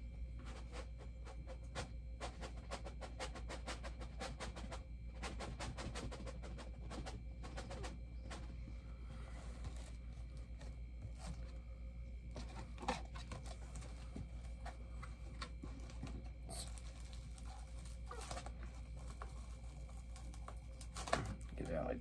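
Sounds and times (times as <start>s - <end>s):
low steady hum: 0.0s - 22.0s
cardboard box rustling and tearing: 15.4s - 21.5s.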